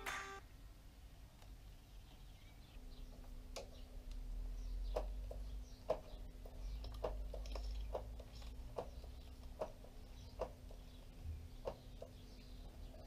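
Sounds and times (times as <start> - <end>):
faint birdsong: 0.0 - 13.0.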